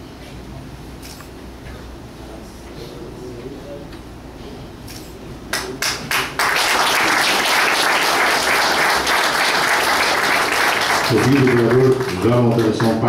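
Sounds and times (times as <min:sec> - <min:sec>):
people applauding: 0:05.5 - 0:13.0.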